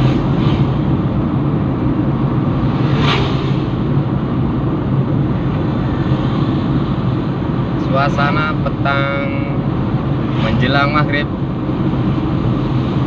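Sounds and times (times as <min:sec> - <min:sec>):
car engine hum: 0:00.0 - 0:13.0
road rumble: 0:00.0 - 0:13.0.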